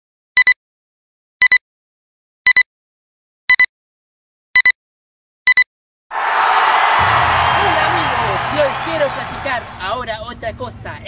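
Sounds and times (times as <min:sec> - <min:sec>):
double electronic beeps: 0:00.4 - 0:00.6, 0:02.5 - 0:02.7, 0:03.5 - 0:03.7, 0:04.6 - 0:04.8, 0:05.5 - 0:05.7.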